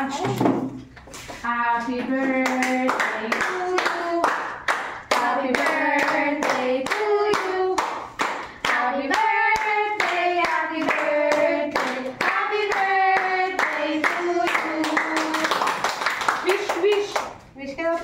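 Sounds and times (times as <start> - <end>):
people singing together: 1.4 - 4.4, 5.0 - 15.6
people clapping in time: 2.4 - 17.3.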